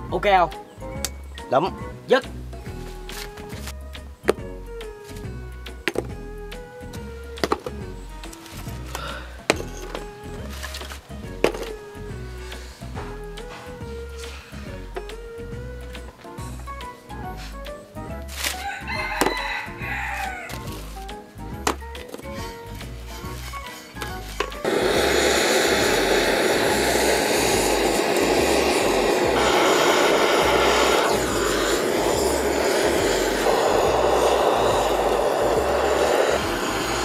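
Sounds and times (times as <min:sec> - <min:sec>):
background music with steady beat: 0:00.0 - 0:37.0
blowtorch hissing: 0:07.6 - 0:15.0, 0:22.2 - 0:37.0
rooster crowing: 0:18.5 - 0:20.7.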